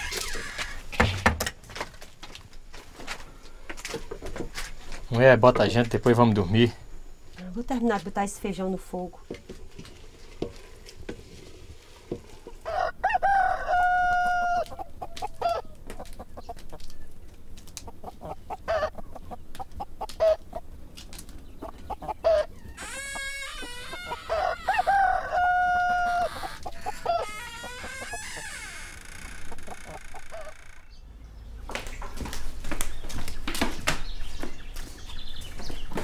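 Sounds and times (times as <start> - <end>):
chickens clucking: 11.8 - 28.6, 29.4 - 31.0
rooster crowing: 12.6 - 15.8, 22.2 - 28.6.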